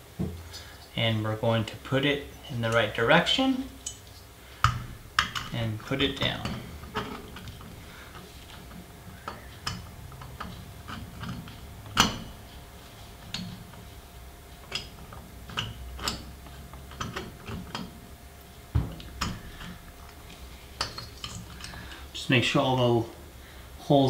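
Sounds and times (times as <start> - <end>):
light metal clicks and knocks: 3.8 - 12.6, 14.6 - 18.0, 18.8 - 22.0.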